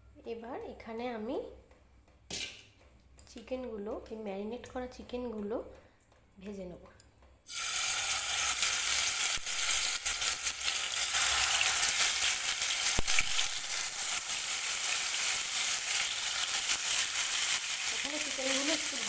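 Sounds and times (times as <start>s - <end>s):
chicken sizzling in hot oil: 7.5s - 19.0s.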